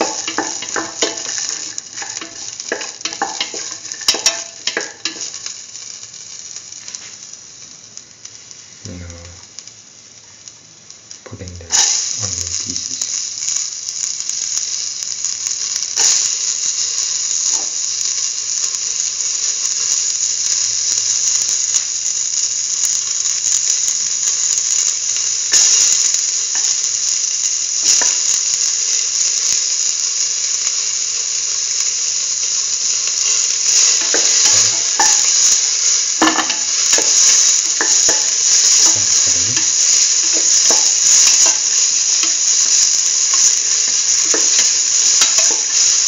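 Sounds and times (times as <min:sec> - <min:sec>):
onion pieces knocking in pan: 0:00.0 - 0:05.6, 0:33.1 - 0:46.0
oil sizzling in a pan: 0:00.0 - 0:46.0.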